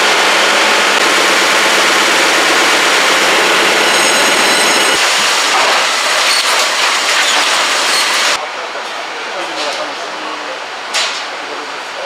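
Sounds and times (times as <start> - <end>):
printing machinery din: 0.0 - 8.4.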